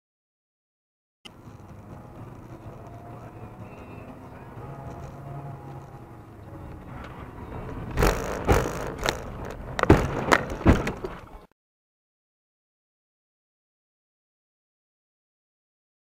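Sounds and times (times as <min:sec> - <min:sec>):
car engine and road noise: 0:01.3 - 0:11.5
car thumping over snow banks: 0:09.8 - 0:11.3.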